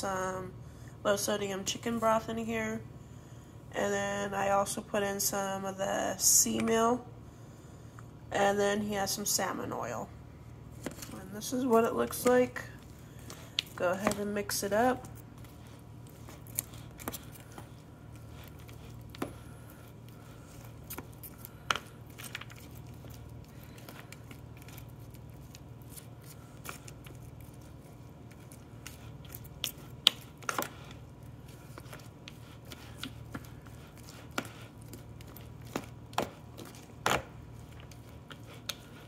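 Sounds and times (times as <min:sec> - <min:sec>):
steady low hum: 0:00.0 - 0:39.0
utensil stirring kibble in bowl: 0:11.5 - 0:39.0.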